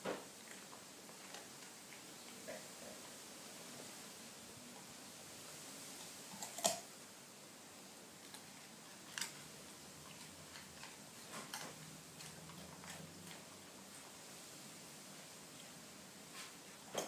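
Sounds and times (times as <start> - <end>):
dog crunching carrot: 0.3 - 2.6, 6.3 - 6.9, 8.2 - 14.0.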